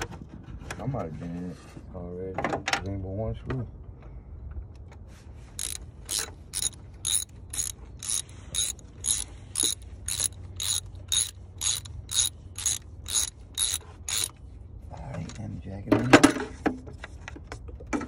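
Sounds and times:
hand ratchet clicking: 0:05.6 - 0:14.3.

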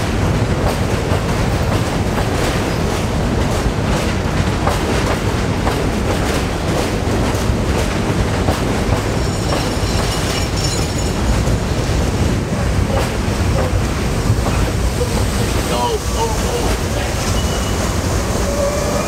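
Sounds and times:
wheels clacking over rail joints: 0:00.0 - 0:18.6
subway train rumbling: 0:00.0 - 0:19.0
faint high squeal: 0:17.2 - 0:19.0.

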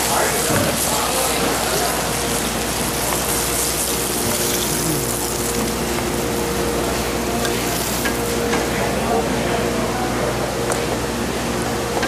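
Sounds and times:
hot oil sizzling in a pan: 0:00.0 - 0:08.6
steady hum: 0:00.0 - 0:12.0.

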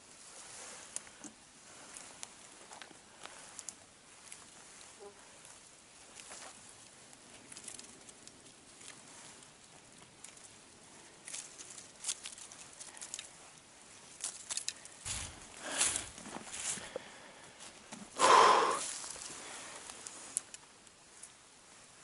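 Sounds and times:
rustling and crackling of leaves: 0:00.0 - 0:22.0.

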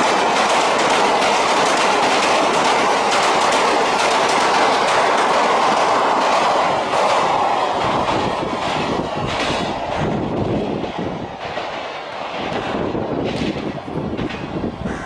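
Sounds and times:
passing train rush: 0:00.0 - 0:15.0
train wheels clattering over rail joints: 0:00.0 - 0:15.0.

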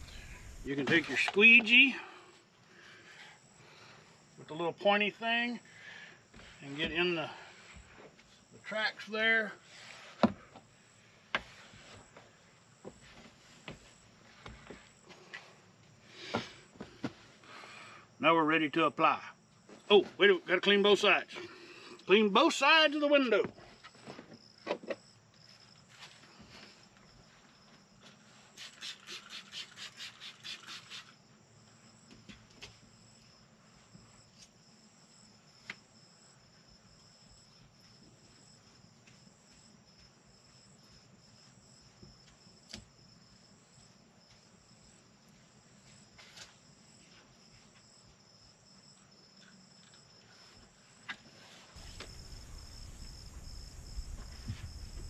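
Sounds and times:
crickets chirping: 0:00.0 - 0:55.0
spray bottle squirts: 0:28.6 - 0:31.2.

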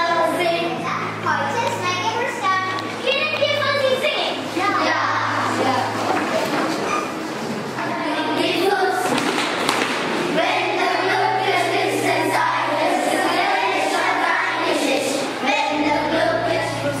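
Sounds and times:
children singing in unison: 0:10.2 - 0:17.0.

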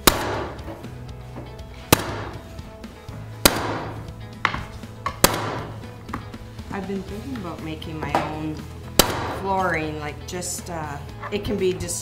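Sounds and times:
mallet striking stapler: 0:00.0 - 0:00.8, 0:01.9 - 0:02.4, 0:03.4 - 0:05.8, 0:09.0 - 0:09.4.

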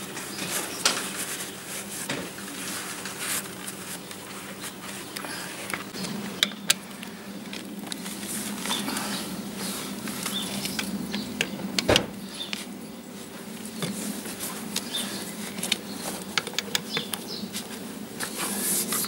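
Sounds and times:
paper towel rustling: 0:00.0 - 0:06.0
steady low hum: 0:00.0 - 0:19.0.

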